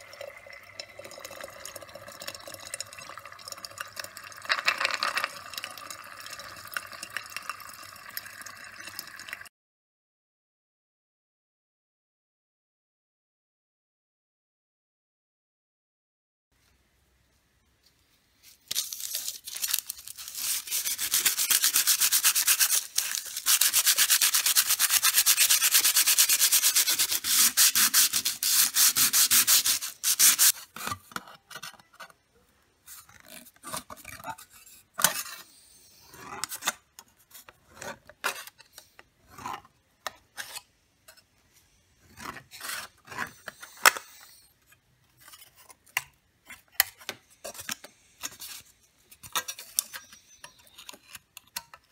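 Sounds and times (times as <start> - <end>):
sandpaper rubbing on metal: 20.1 - 30.6.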